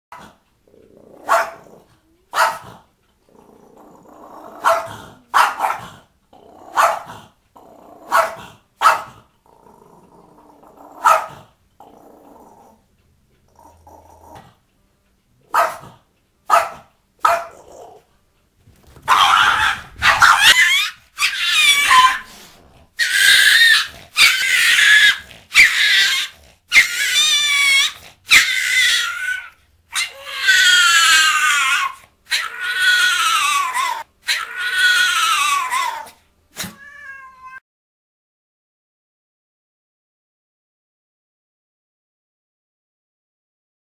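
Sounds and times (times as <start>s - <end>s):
dog growling: 0.2s - 14.6s, 17.3s - 18.2s, 18.8s - 34.7s
dog barking: 1.2s - 1.7s, 2.3s - 2.8s, 4.6s - 6.0s, 6.7s - 7.3s, 8.1s - 9.2s, 11.0s - 11.5s, 15.5s - 17.6s, 19.0s - 22.3s.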